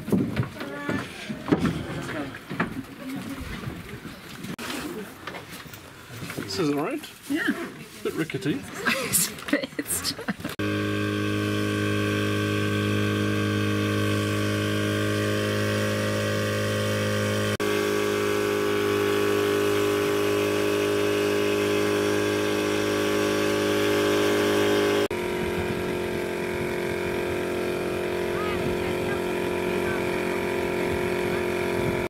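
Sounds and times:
motorboat engine droning: 0:10.5 - 0:32.0.

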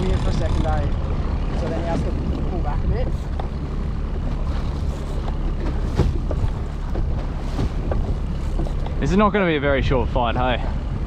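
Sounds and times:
boat motor running: 0:00.0 - 0:11.0
wind buffeting microphone: 0:00.0 - 0:11.0
water splashing against hull: 0:00.9 - 0:09.7.

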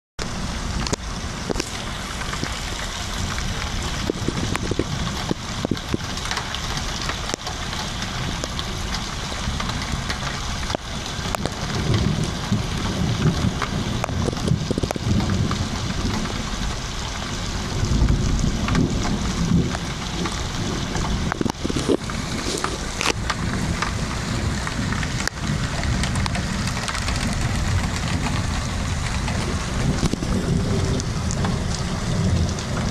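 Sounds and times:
floodwater rushing: 0:00.2 - 0:32.9
low rumble: 0:11.5 - 0:32.9.

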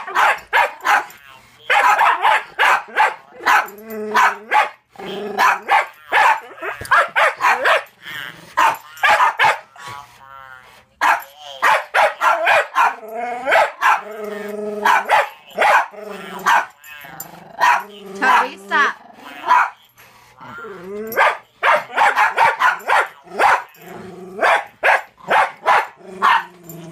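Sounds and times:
dog barking: 0:00.0 - 0:04.8, 0:05.4 - 0:07.9, 0:08.6 - 0:09.7, 0:11.0 - 0:14.1, 0:14.8 - 0:16.8, 0:17.6 - 0:18.6, 0:19.4 - 0:19.8, 0:21.1 - 0:23.8, 0:24.4 - 0:26.6.

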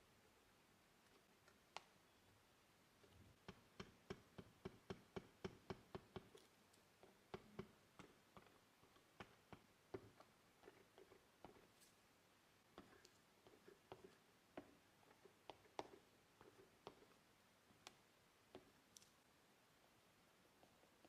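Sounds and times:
oil pastel tapping on paper: 0:03.4 - 0:06.4, 0:07.0 - 0:11.6.

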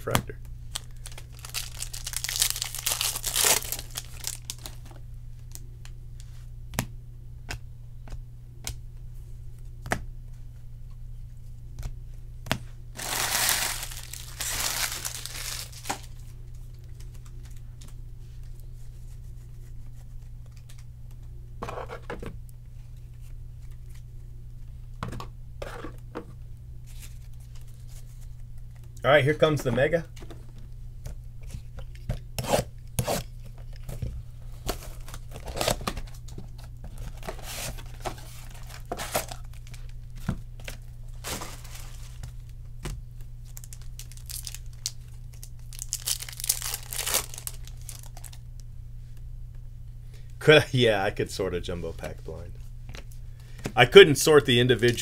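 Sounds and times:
steady low hum: 0:00.0 - 0:55.0
card wrappers crinkling and tearing: 0:00.7 - 0:05.0, 0:13.0 - 0:17.6, 0:34.5 - 0:42.6, 0:43.2 - 0:48.4.

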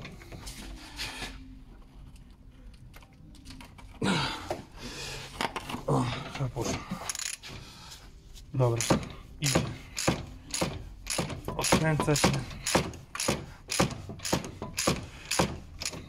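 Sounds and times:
wrench clicking: 0:07.1 - 0:07.5, 0:08.8 - 0:16.0.

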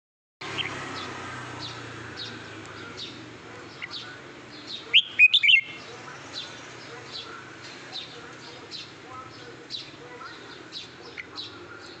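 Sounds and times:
bird chirping: 0:00.5 - 0:12.0
sharp bird call: 0:04.8 - 0:05.8.

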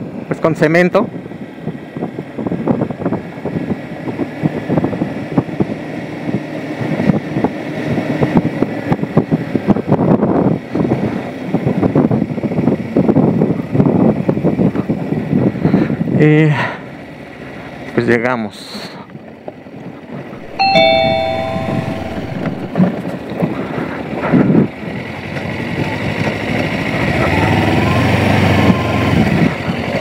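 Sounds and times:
knocks and rattles from bumpy road: 0:22.9 - 0:27.4, 0:28.3 - 0:30.0.

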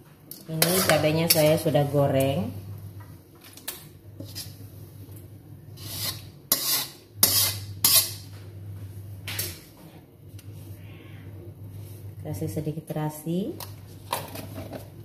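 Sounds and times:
spatula scraping wok: 0:00.6 - 0:01.8, 0:04.2 - 0:04.7, 0:05.7 - 0:08.3.

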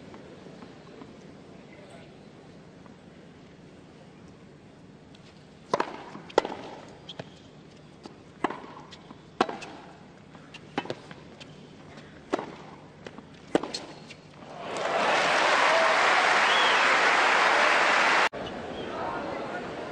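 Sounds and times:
racquets hitting tennis ball: 0:05.7 - 0:07.3, 0:08.0 - 0:14.9
tennis ball bouncing: 0:05.7 - 0:07.4, 0:08.0 - 0:14.2
crowd applause: 0:14.5 - 0:18.3.

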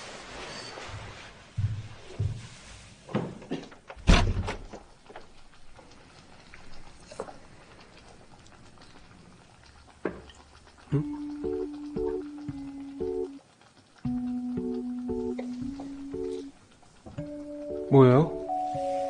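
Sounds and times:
soft thumps and knocks: 0:01.6 - 0:02.5.

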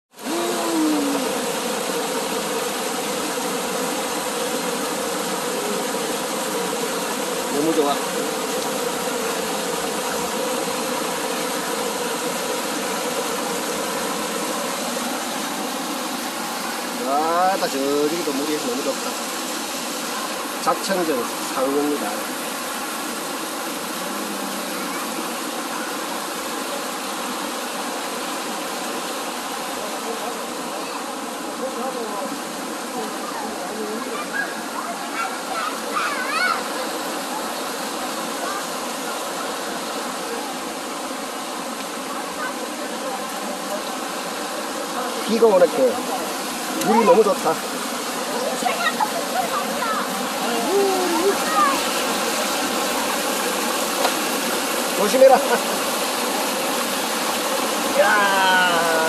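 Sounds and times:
stream rushing over boulders: 0:00.1 - 0:59.0
waterfall splashing into pool: 0:00.1 - 0:59.0.

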